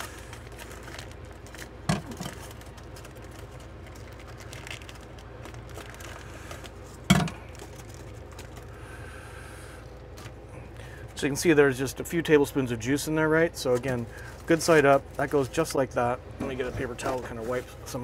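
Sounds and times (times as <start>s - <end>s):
plastic packaging crinkling: 0.0s - 9.1s, 13.6s - 15.8s
steady low hum: 0.0s - 18.0s.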